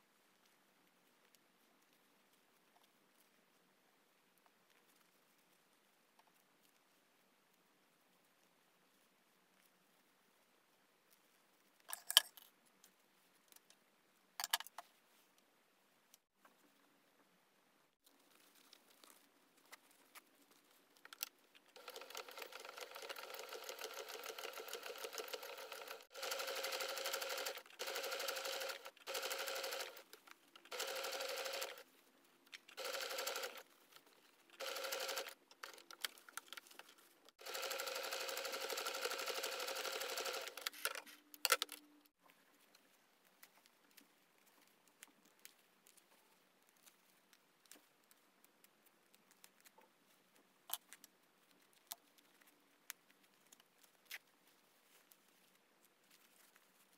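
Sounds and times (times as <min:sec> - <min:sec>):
sewing machine stitching: 0:21.8 - 0:31.8, 0:32.8 - 0:33.7, 0:34.5 - 0:35.9, 0:37.4 - 0:41.0.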